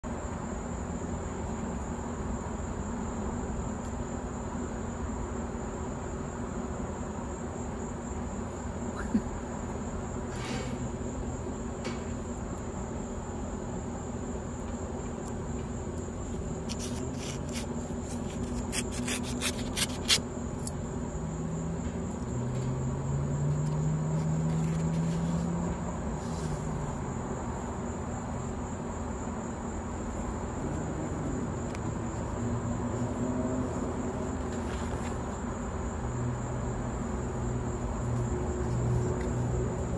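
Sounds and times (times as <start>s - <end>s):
high-pitched insect-like trill: 15.8s - 25.1s
scissors snipping paper: 16.6s - 20.2s.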